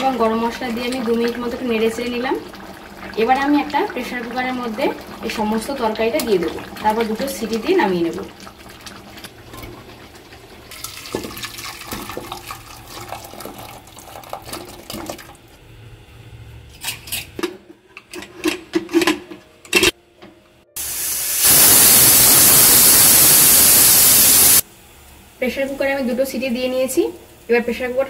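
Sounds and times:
pressure cooker steam hiss: 20.8 - 24.7.

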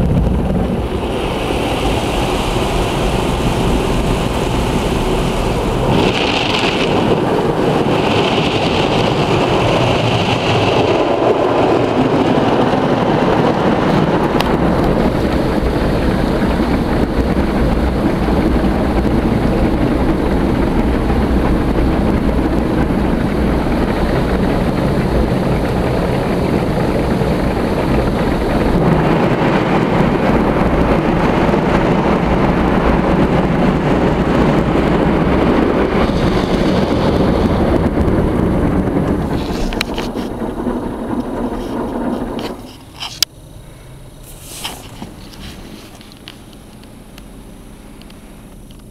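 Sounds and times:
water spray: 0.6 - 10.7, 44.2 - 48.5
car wash brushes scrubbing: 44.2 - 46.8.

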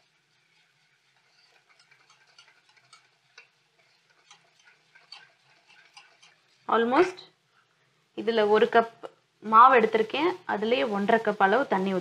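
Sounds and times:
whisk clicking against steel bowl: 0.6 - 6.6.

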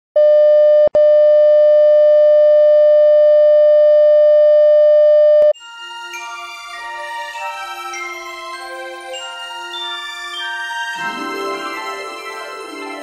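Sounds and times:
single-pitch test tone: 0.2 - 5.5
light bell-like music: 5.6 - 13.0.

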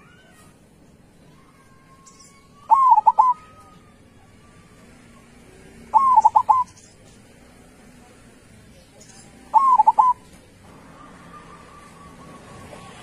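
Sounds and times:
dove cooing: 2.7 - 3.5, 5.8 - 6.8, 9.5 - 10.3.

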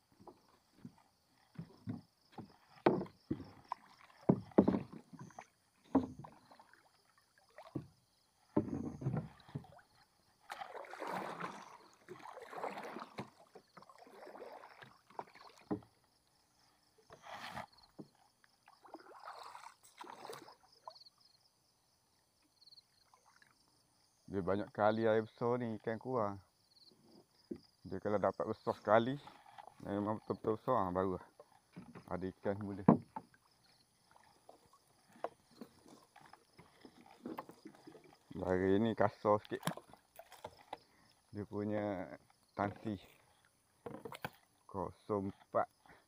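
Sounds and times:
water splashing and sloshing: 0.0 - 21.4, 22.2 - 24.2, 27.0 - 46.0
knocks on a small boat: 1.5 - 3.6, 4.2 - 6.3, 8.5 - 9.6, 32.8 - 33.3.

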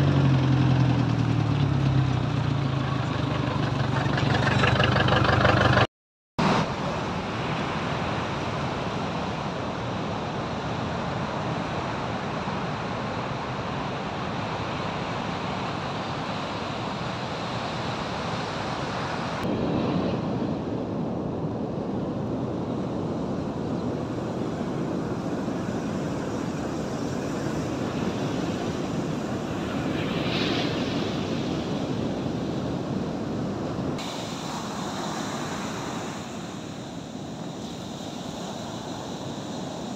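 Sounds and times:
vehicle engine idling: 0.0 - 5.9
ocean surf washing onto beach: 6.4 - 39.9.

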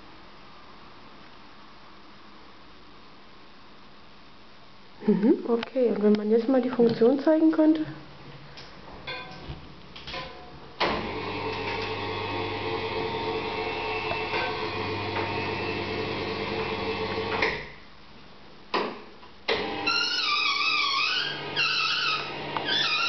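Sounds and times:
electric lift motor humming: 10.2 - 17.6, 19.5 - 23.0.

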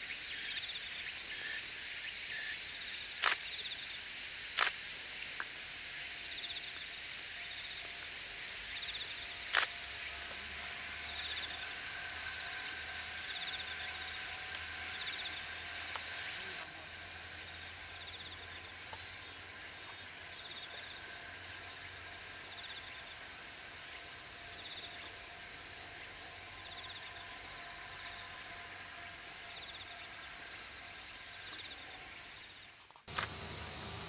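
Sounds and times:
insects chirring: 0.0 - 33.4
pulsed insect call: 0.0 - 33.4.

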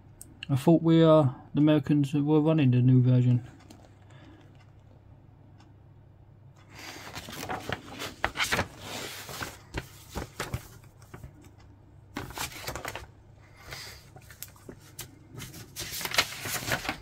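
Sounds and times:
paper sheet rustling and crinkling: 6.8 - 11.5, 12.2 - 17.0.

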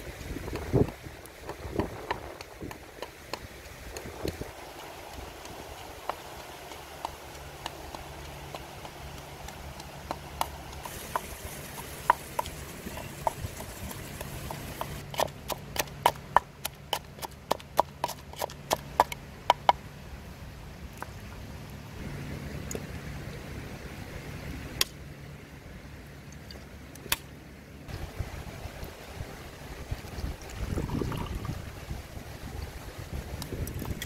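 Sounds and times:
pestle pounding in clay mortar: 0.4 - 19.8.

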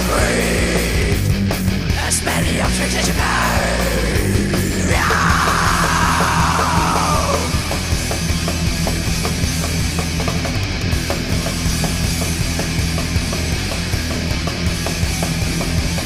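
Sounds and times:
heavy metal band playing: 0.0 - 16.0
harsh noisy falling sweep: 2.2 - 8.4.

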